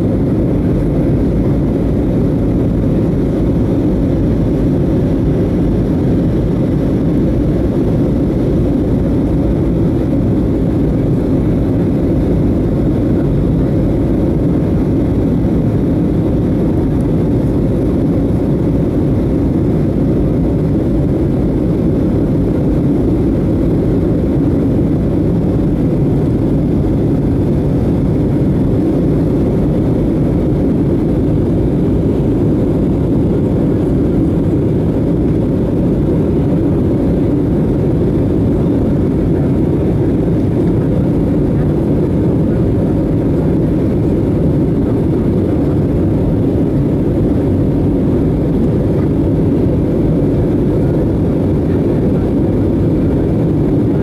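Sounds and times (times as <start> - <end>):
airplane cabin engine noise: 0.0 - 54.0.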